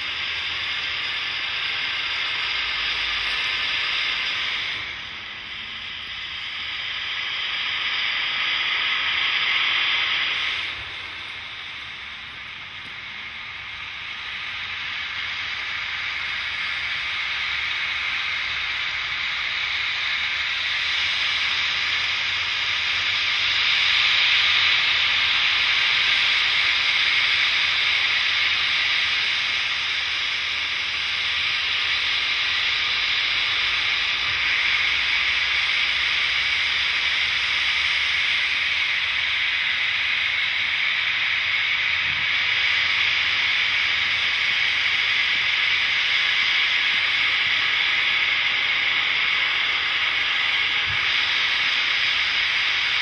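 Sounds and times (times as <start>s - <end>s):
steam locomotive hissing: 0.0s - 53.0s.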